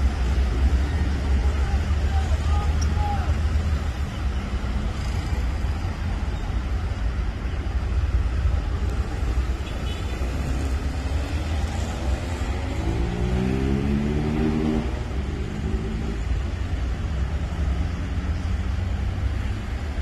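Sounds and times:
road traffic rumble: 0.0 - 20.0
vehicle engine accelerating: 10.7 - 16.4.

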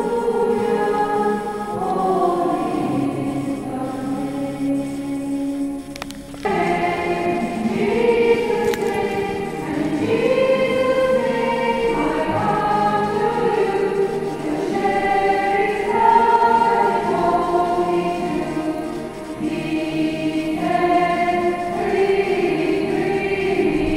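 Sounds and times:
choir singing slow melody: 0.0 - 23.9.

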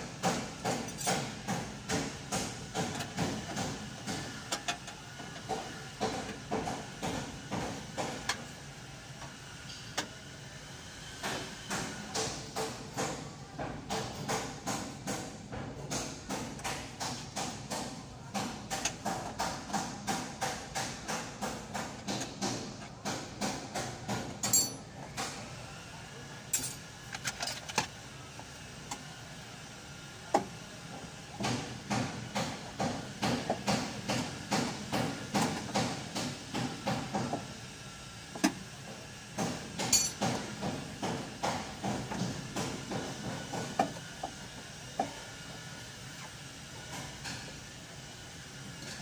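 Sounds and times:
metallic clinks: 24.4 - 24.8.

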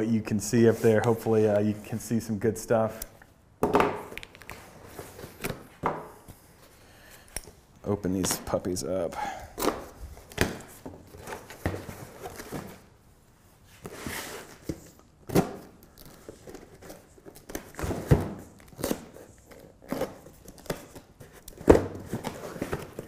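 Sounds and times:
cardboard rustling: 9.6 - 12.9, 16.0 - 23.0.

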